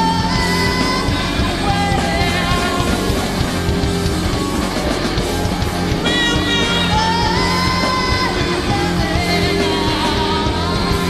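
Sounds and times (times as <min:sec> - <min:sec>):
person singing: 0:00.0 - 0:03.6, 0:06.0 - 0:11.0
rock band playing: 0:00.0 - 0:11.0.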